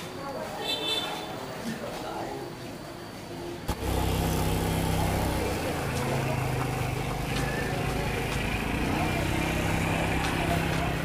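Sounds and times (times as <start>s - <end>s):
vehicle engine droning: 3.7s - 11.0s.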